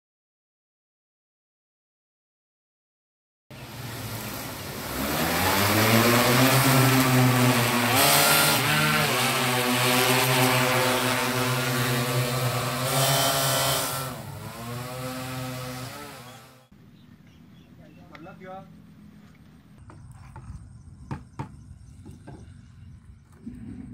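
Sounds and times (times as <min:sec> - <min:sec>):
drone propellers whirring: 0:03.6 - 0:16.7.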